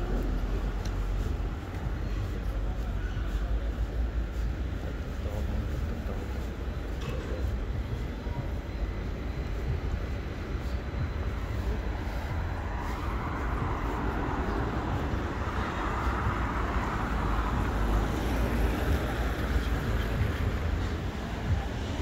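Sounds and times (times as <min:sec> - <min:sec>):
traffic low rumble: 0:00.0 - 0:22.0.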